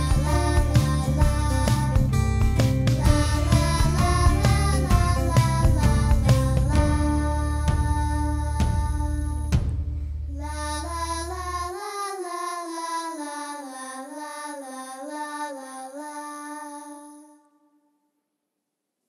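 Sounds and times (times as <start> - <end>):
bass and percussive strikes: 0.0 - 10.4
low bass line: 0.0 - 11.4.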